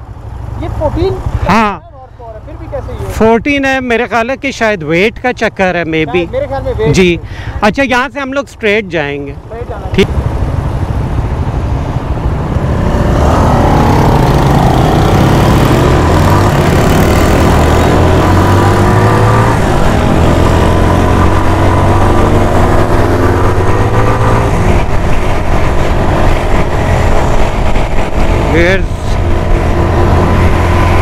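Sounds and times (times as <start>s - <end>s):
motorcycle engine accelerating: 10.0s - 31.0s
wind rushing over microphone: 10.2s - 31.0s.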